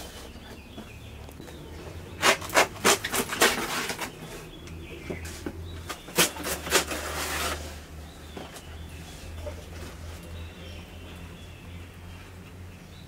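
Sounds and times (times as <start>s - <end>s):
leaf tearing rasp: 2.1s - 4.5s, 5.9s - 7.9s
leaf ripping under a blade: 2.2s - 4.2s.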